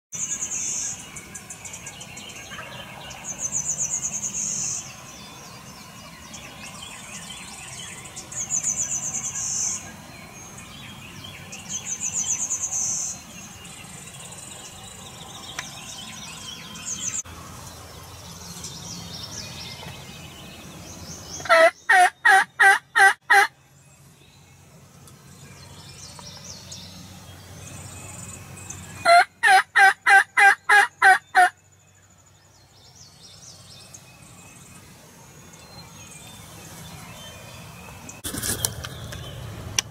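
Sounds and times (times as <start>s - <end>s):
turkey yelping: 21.4s - 23.5s, 29.0s - 31.5s.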